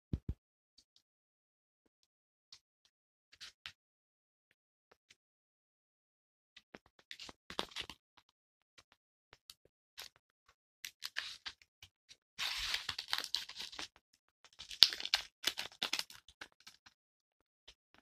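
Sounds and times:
paper rustling and crinkling: 0:07.1 - 0:08.0, 0:10.8 - 0:11.6, 0:12.4 - 0:14.0, 0:14.6 - 0:16.8.

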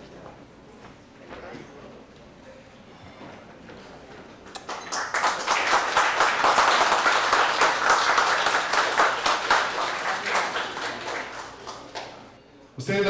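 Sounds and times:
small group applauding: 0:04.5 - 0:12.4.

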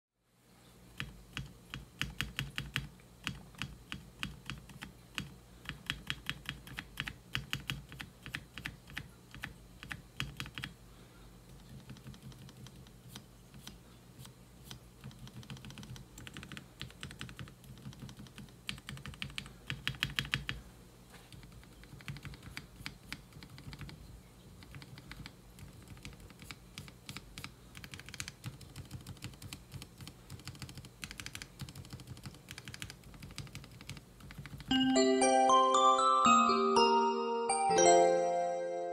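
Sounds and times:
mechanical keyboard keystrokes: 0:01.0 - 0:10.8, 0:11.6 - 0:12.9, 0:15.0 - 0:20.6, 0:21.3 - 0:24.0, 0:24.6 - 0:34.7.

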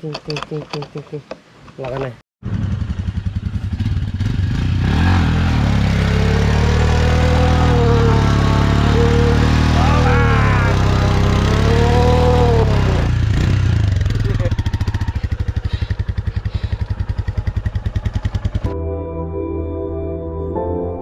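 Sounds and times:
motorcycle engine running: 0:02.4 - 0:18.8.

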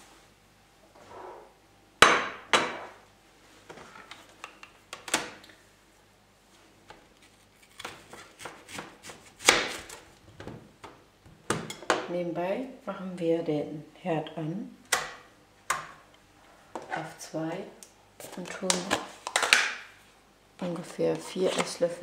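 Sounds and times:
knife cutting onion: 0:07.6 - 0:10.0.

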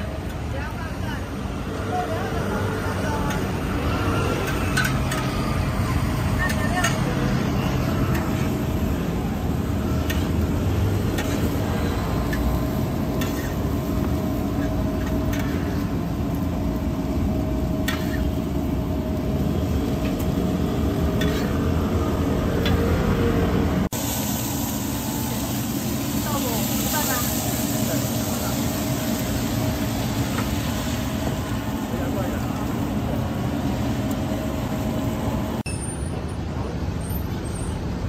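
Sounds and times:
omelettes sizzling on griddle: 0:00.0 - 0:35.7
oil bubbling in deep fryer: 0:02.4 - 0:35.6
metal spatula scraping and tapping: 0:13.1 - 0:13.6, 0:21.2 - 0:21.6.

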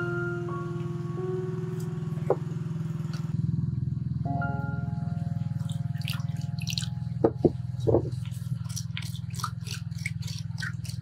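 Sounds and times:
steady low hum: 0:00.0 - 0:11.0
water pouring into clay pot: 0:05.7 - 0:07.0
wooden spoon knocking clay pot: 0:07.2 - 0:08.2.

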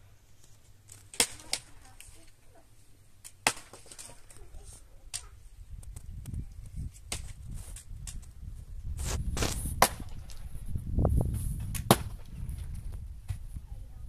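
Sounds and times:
sharp chopping strikes: 0:03.4 - 0:03.9, 0:09.4 - 0:10.2, 0:11.8 - 0:12.2.

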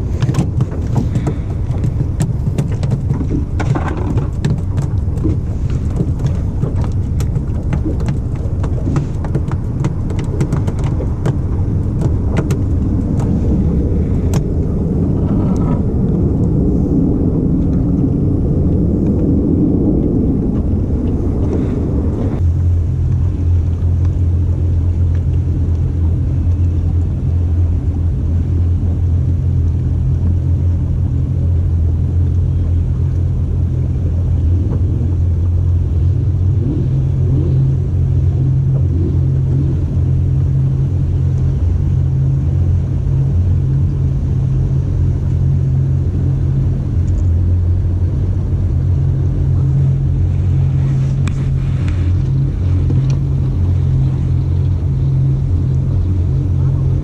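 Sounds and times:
knocks and rattles: 0:00.0 - 0:13.4
engine rumbling: 0:00.0 - 0:57.0.

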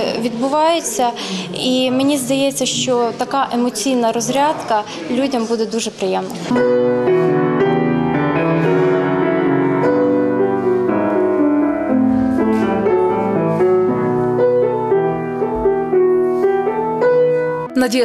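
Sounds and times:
solo classical piano: 0:06.5 - 0:17.8.

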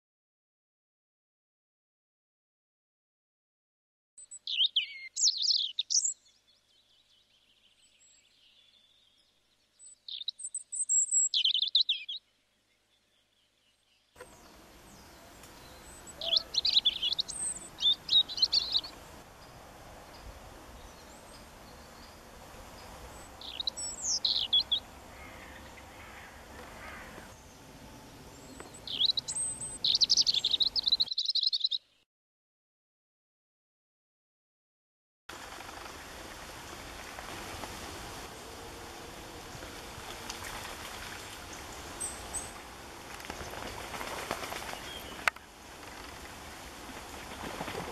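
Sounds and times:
faint outdoor hiss: 0:04.2 - 0:32.0, 0:35.3 - 0:47.9
songbird singing: 0:04.2 - 0:32.0, 0:38.3 - 0:46.1.

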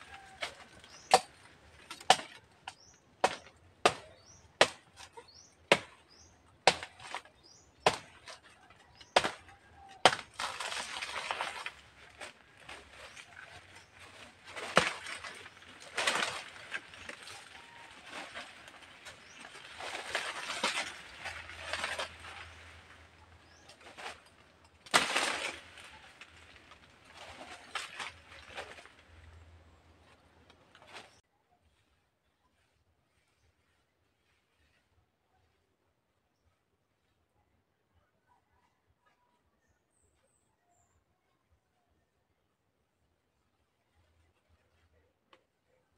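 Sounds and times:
blade chopping plant trunk: 0:00.4 - 0:28.9
plant crashing through foliage: 0:09.0 - 0:29.4.

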